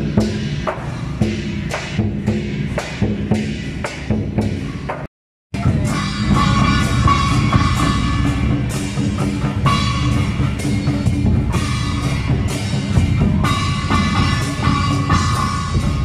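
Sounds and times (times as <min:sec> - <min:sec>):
heavy drumming: 0:00.0 - 0:16.0
cymbal or gong strokes: 0:05.6 - 0:16.0.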